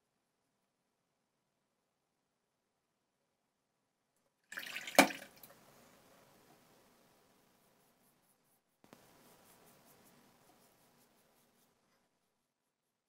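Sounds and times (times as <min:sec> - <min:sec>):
water splash: 0:04.5 - 0:05.5.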